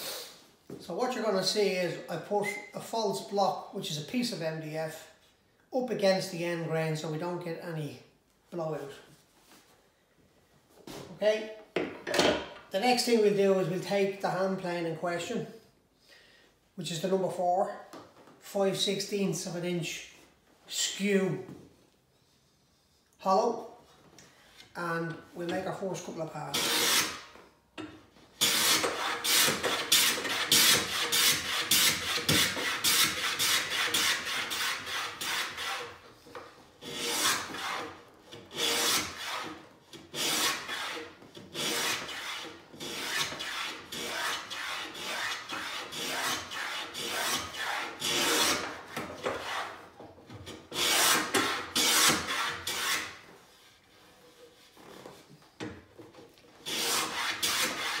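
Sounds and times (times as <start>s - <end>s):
hand plane rasping strokes: 26.5s - 27.3s, 28.4s - 55.3s, 56.2s - 58.0s.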